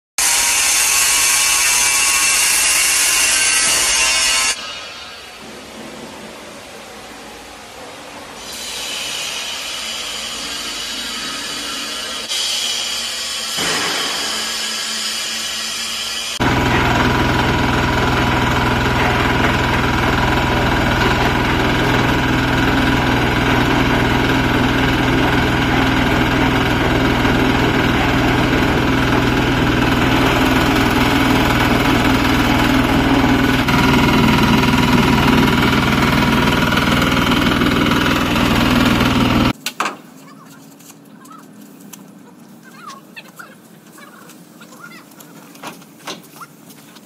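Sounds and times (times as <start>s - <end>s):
concrete mixer running: 16.2s - 39.6s.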